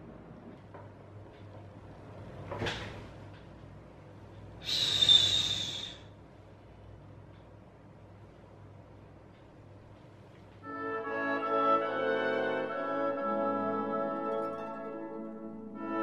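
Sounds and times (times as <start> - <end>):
person shushing: 4.6 - 6.1.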